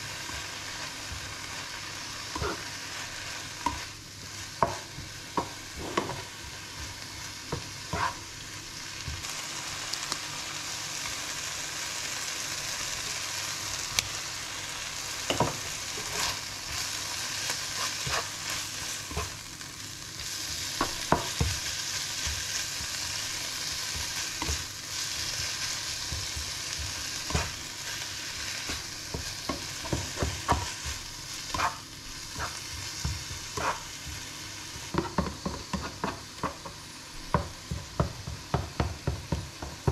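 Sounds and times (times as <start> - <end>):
spinach sizzling in a frying pan: 0.0 - 39.9
spatula knocking and scraping pan: 2.3 - 2.7, 4.6 - 8.2, 15.2 - 16.4, 17.7 - 19.4, 20.8 - 24.7, 26.0 - 27.7, 28.4 - 39.9.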